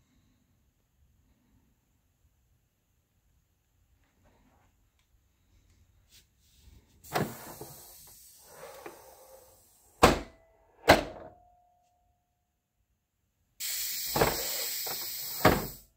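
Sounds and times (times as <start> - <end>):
landing gear hissing: 7.0 - 10.0, 13.6 - 15.9.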